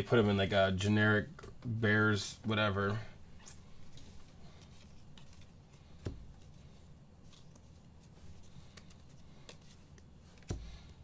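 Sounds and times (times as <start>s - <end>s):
low room hum: 0.0s - 11.0s
cards sliding and tapping: 3.9s - 11.0s.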